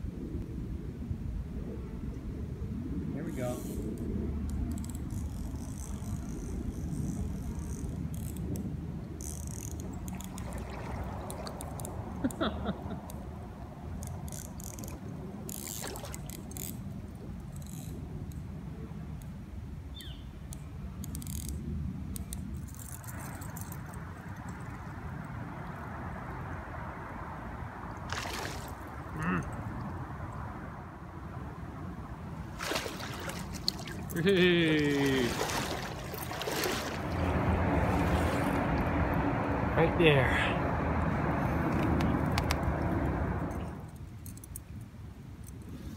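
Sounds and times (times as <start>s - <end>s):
fishing reel clicks and rattles: 4.5s - 8.6s, 9.2s - 10.4s, 14.0s - 14.9s, 15.5s - 16.8s, 21.0s - 24.0s
rushing water: 10.1s - 12.1s, 27.8s - 30.1s, 32.4s - 41.0s
low outdoor rumble: 20.6s - 45.0s.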